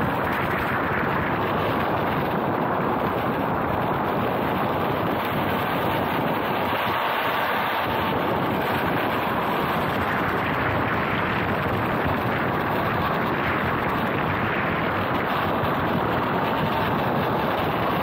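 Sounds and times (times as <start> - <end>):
skateboard rolling over asphalt: 0.0 - 17.9
wind rushing over microphone: 0.0 - 18.0.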